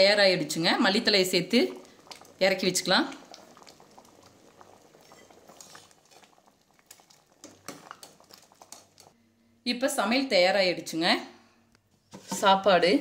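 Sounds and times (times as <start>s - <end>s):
food simmering in a pot: 0.0s - 9.5s.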